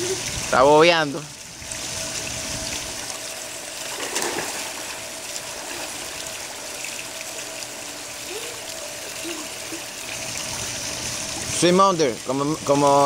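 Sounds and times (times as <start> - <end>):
pool water sloshing: 0.0 - 13.0
water splash: 1.7 - 7.8.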